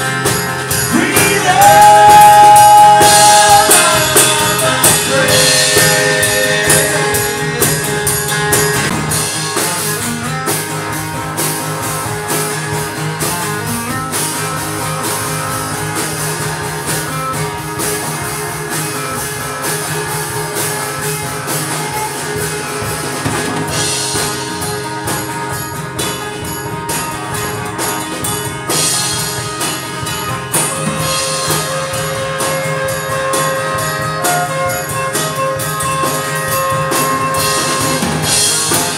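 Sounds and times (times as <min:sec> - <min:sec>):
acoustic guitar strumming: 0:00.0 - 0:38.9
drum kit beat: 0:00.0 - 0:38.9.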